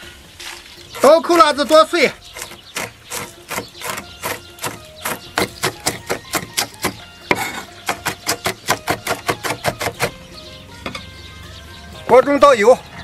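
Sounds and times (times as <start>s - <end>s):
cleaver chopping on wooden block: 2.4s - 10.2s.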